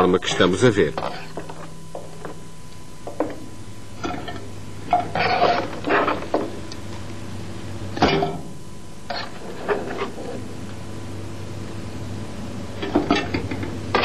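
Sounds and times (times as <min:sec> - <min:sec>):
low hum: 0:00.0 - 0:14.0
bones knocking and scraping metal: 0:04.0 - 0:06.5.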